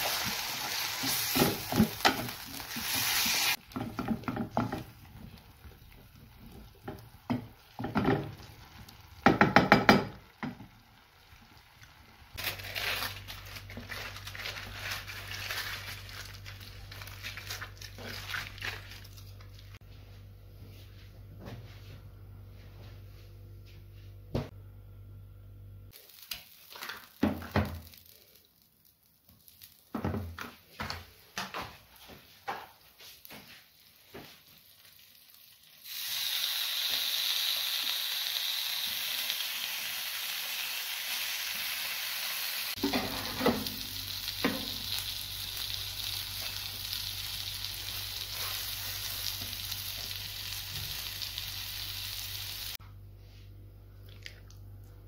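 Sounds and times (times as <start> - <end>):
food sizzling in a pan: 0.0 - 18.8, 25.9 - 30.2, 32.5 - 52.8.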